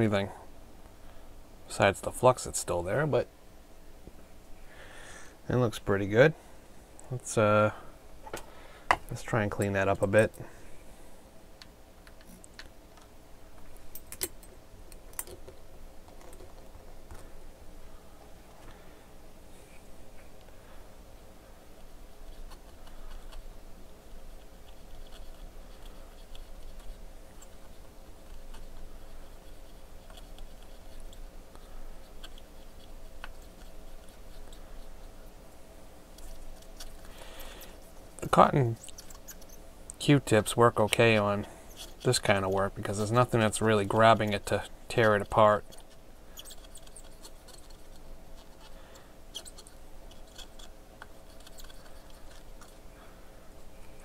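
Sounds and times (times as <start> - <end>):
faint steady hum: 0.0 - 54.0
cotton swab scrubbing circuit board: 24.2 - 35.4, 36.1 - 52.8.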